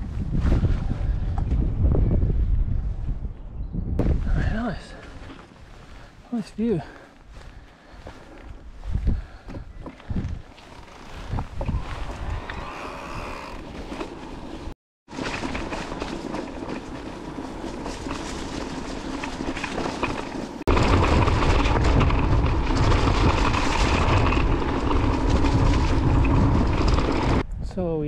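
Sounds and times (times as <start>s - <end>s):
wind on microphone: 0.0s - 4.8s, 7.3s - 13.8s, 20.7s - 28.0s
bike tyre rumble and frame rattle: 0.0s - 27.6s.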